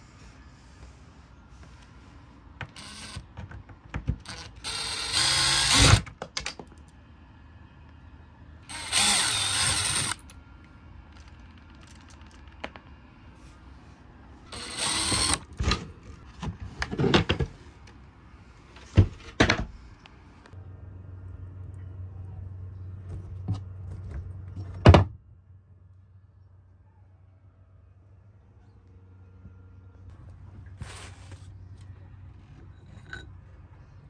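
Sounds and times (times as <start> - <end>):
cordless drill running: 2.8 - 3.2, 4.3 - 6.0, 8.7 - 10.2, 14.5 - 15.4.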